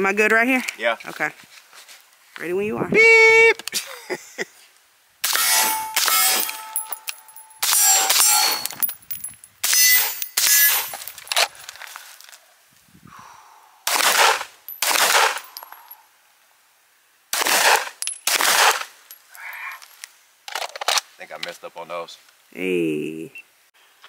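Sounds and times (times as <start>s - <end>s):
thin metallic ring: 5.4s - 11.3s.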